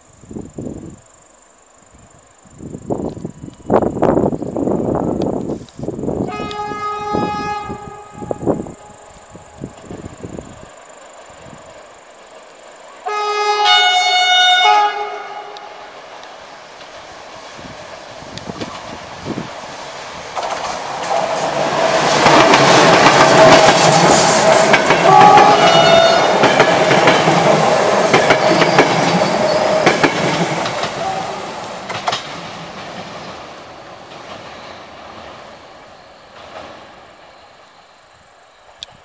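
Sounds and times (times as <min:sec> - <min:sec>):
train rumble passing by: 0:03.3 - 0:39.0
locomotive horn blast: 0:06.2 - 0:09.1, 0:13.0 - 0:16.0, 0:24.9 - 0:26.5
wheels clacking over rail joints: 0:15.5 - 0:37.2.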